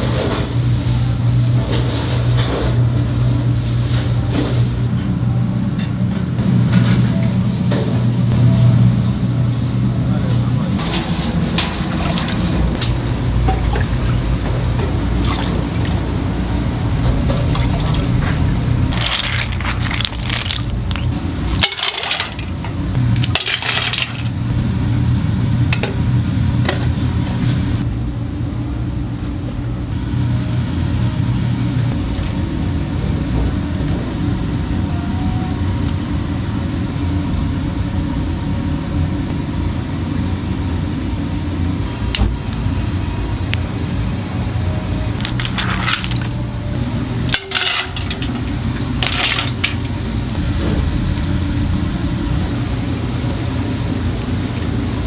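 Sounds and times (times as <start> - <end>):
stove rumble: 0.0 - 55.0
clam shells clattering: 18.9 - 22.4, 45.2 - 46.3.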